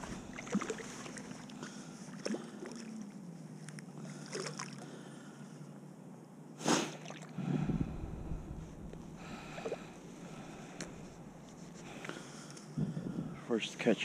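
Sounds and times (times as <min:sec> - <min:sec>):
low rumble: 0:00.0 - 0:00.5, 0:07.4 - 0:11.7
water lapping: 0:00.0 - 0:05.5, 0:06.8 - 0:13.3.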